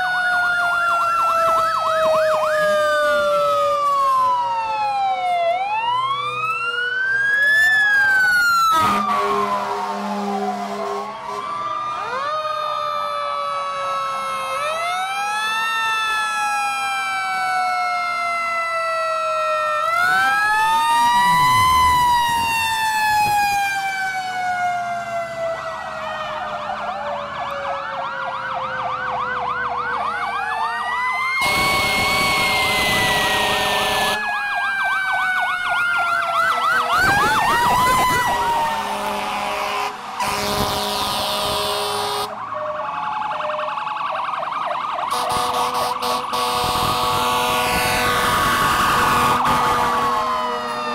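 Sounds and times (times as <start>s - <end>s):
fire truck sirens wailing: 0.0s - 50.9s
loud horn blasts: 8.7s - 11.5s, 31.4s - 34.2s, 38.3s - 42.4s, 45.1s - 50.9s.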